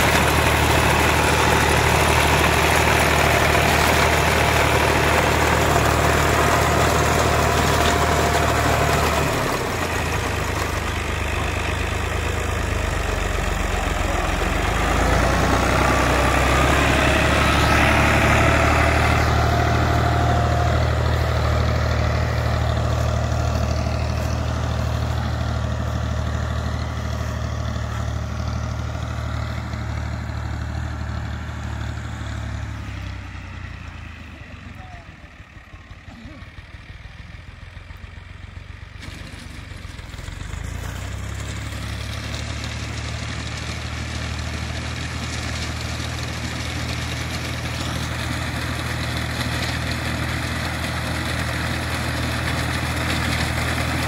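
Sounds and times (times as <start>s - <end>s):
tractor diesel engine running: 0.0s - 54.0s.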